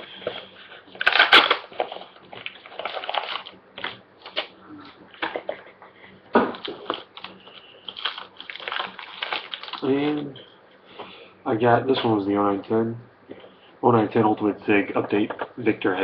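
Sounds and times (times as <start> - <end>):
packaging crinkling: 0.2 - 5.6, 6.5 - 10.4.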